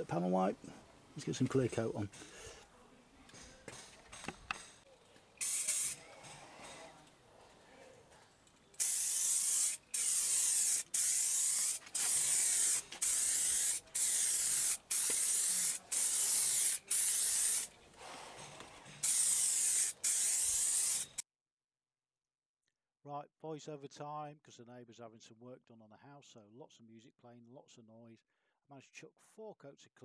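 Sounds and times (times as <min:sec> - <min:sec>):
aerosol spray can hissing: 0:05.4 - 0:06.0, 0:08.8 - 0:17.7, 0:19.0 - 0:21.2.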